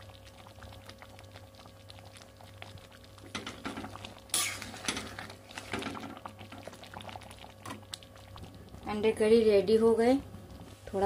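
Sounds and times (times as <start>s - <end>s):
simmering curry clicks: 6.1s - 8.9s.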